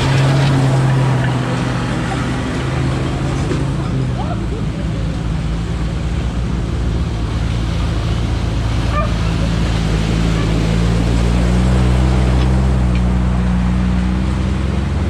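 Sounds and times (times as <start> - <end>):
vehicle engines running: 0.0 - 15.0
water rushing and splashing: 0.0 - 15.0.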